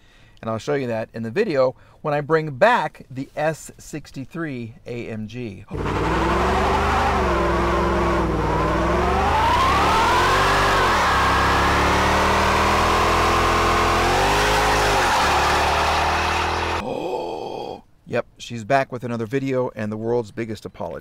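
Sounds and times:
car engine revving hard: 5.7s - 16.8s
tyres squealing: 9.6s - 16.8s.

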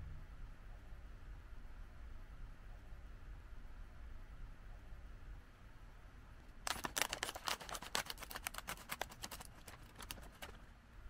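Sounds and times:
scissors cutting foil bag: 6.7s - 10.6s.

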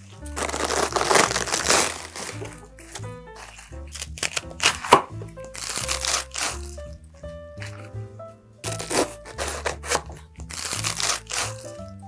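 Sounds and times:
cabbage stalks crunching: 0.0s - 6.9s, 8.6s - 11.8s
light background music: 0.0s - 12.0s.

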